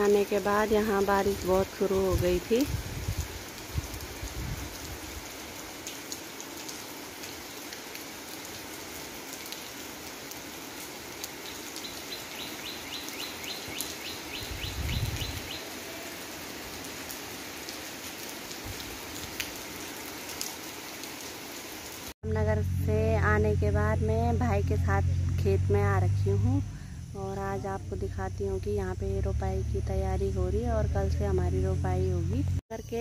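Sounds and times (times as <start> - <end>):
heavy rain on concrete: 0.0 - 22.2.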